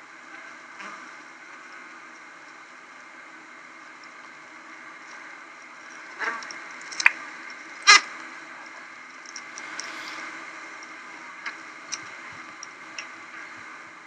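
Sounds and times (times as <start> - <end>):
bee colony humming: 9.3 - 11.2.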